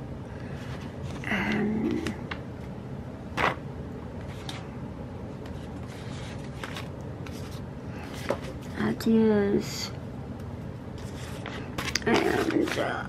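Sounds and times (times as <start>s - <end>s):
paper rustling: 4.2s - 4.7s, 5.4s - 8.8s, 11.0s - 13.0s.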